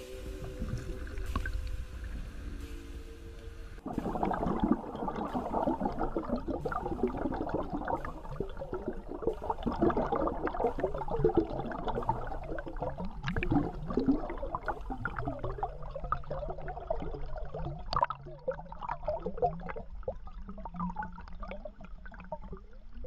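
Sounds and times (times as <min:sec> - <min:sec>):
low rumble: 0:00.0 - 0:15.8
river water gurgling: 0:00.0 - 0:16.0.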